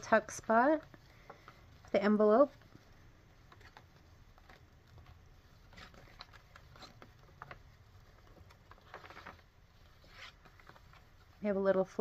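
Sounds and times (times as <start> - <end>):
paper pages rustling: 0.1 - 12.0.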